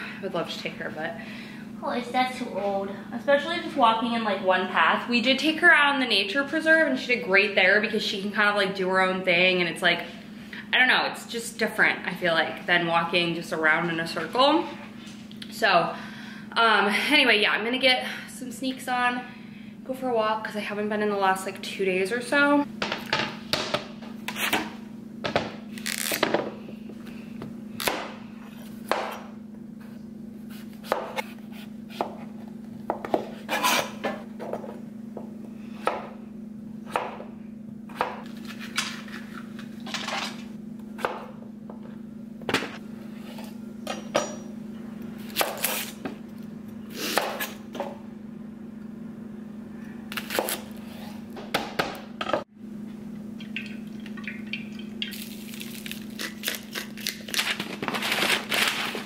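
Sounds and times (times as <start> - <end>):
steady low hum: 0.0 - 59.0
knife chopping on cutting board: 30.5 - 32.3.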